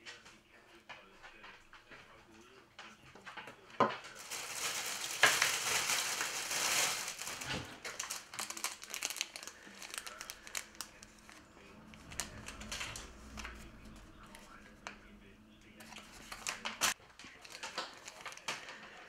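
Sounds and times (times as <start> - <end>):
plastic bags crinkling: 3.8 - 13.6, 15.8 - 19.0.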